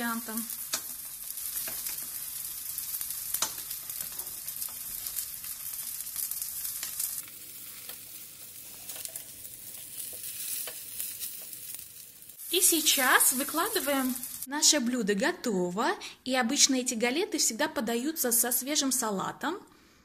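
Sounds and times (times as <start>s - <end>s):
food sizzling in pan: 0.0s - 14.5s
utensils clicking against pan: 0.6s - 2.2s, 3.3s - 5.2s.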